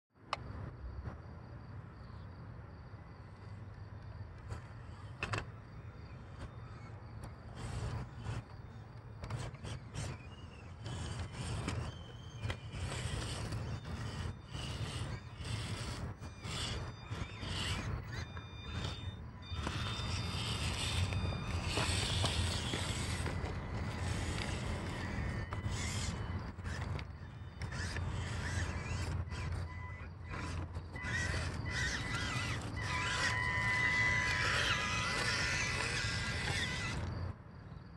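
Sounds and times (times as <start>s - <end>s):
small electric motors whirring: 4.3s - 37.4s.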